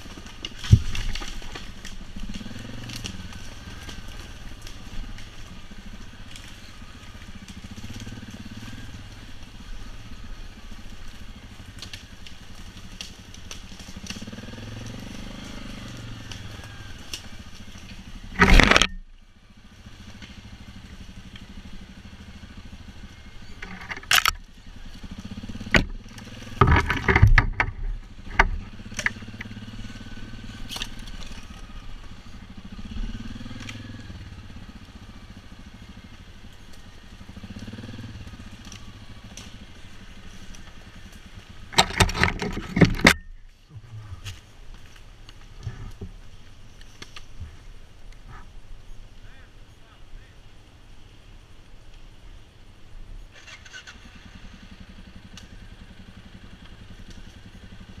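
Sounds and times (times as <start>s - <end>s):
quad bike engine running: 0.0s - 58.0s
sharp clattering knocks: 25.6s - 29.5s, 41.7s - 43.2s.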